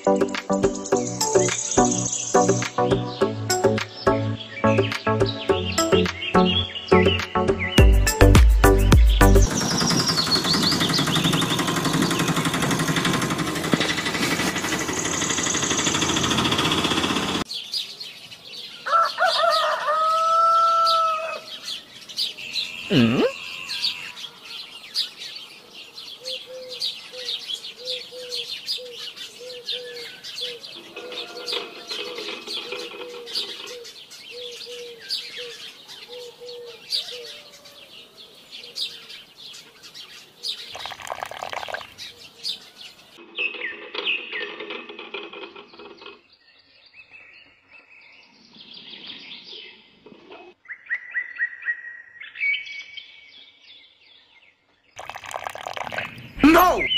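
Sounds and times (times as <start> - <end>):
music: 0.0 - 9.5
birds chirping: 0.0 - 51.5, 52.4 - 56.9.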